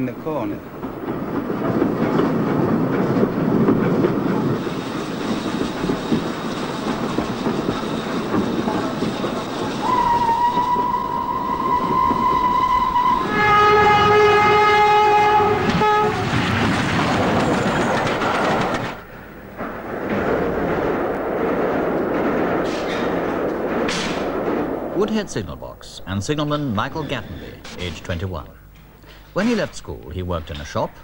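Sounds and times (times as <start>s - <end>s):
train rumbling on track: 0.0s - 31.0s
wheels clattering over rail joints: 0.0s - 31.0s
train horn: 9.8s - 16.5s.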